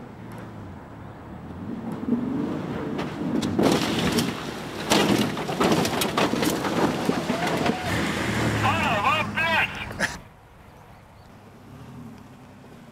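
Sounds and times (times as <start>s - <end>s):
truck engine revving: 0.3s - 10.2s
truck landing with heavy thuds: 2.9s - 9.0s.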